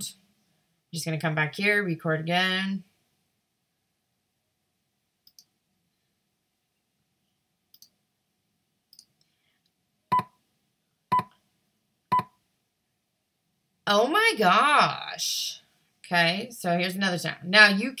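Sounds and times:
faint clicks: 5.2s - 5.5s, 7.7s - 8.0s.

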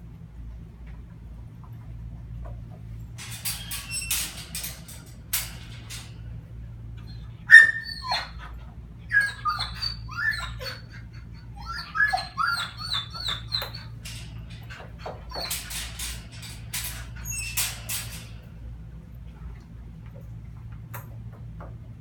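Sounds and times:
dog whining and whimpering: 7.0s - 17.8s.

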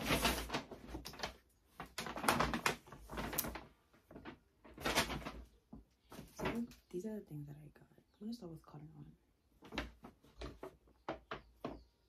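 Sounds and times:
paper bags rustling: 0.0s - 6.8s.

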